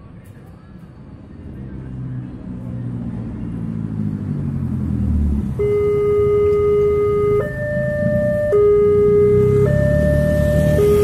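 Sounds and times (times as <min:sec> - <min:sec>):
level crossing warning alarm: 0:05.6 - 0:11.0.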